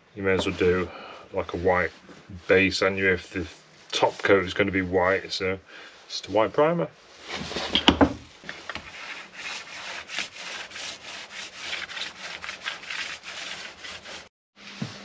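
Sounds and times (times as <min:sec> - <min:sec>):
paintbrush scrubbing on timber: 0:01.6 - 0:04.7, 0:08.6 - 0:14.3.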